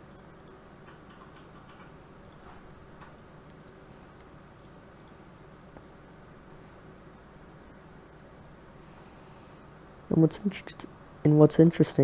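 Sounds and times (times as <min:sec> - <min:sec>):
computer mouse clicks: 0:00.0 - 0:05.2
low steady hiss: 0:00.0 - 0:12.0.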